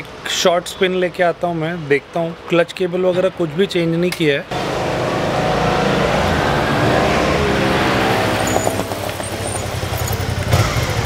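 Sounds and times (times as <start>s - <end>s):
motorcycle passing by: 4.5s - 11.0s.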